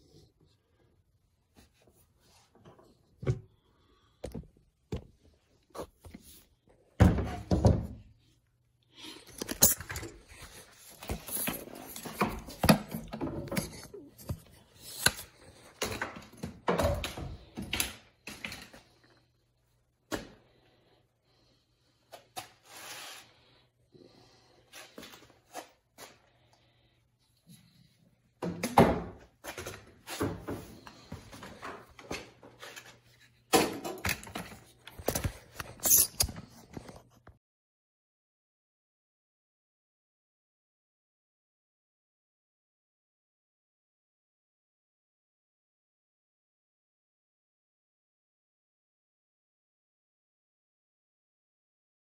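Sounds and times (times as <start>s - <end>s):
tools and plastic parts clattering: 9.1s - 18.8s, 28.4s - 37.2s.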